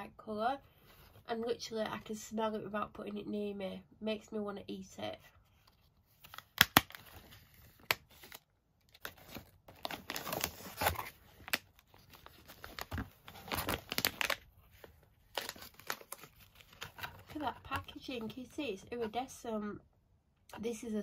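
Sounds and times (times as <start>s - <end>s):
plastic packaging crinkling: 6.2s - 17.9s.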